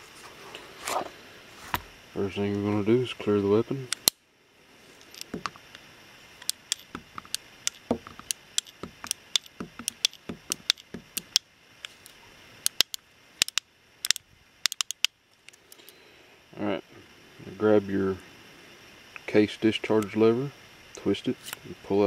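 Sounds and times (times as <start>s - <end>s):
revolver cylinder clicking: 3.9s - 4.2s, 6.4s - 15.6s.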